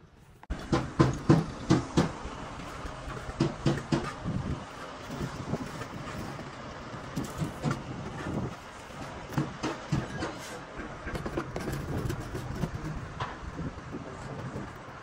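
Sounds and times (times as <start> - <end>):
workshop noise: 0.0 - 15.0
irregular knocks and clanks: 0.5 - 4.4, 5.1 - 12.4.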